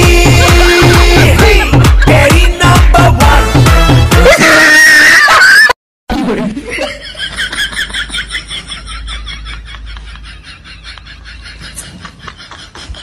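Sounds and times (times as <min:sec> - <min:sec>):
loud music with heavy beat: 0:00.0 - 0:04.7
high-pitched laughter: 0:06.7 - 0:13.0.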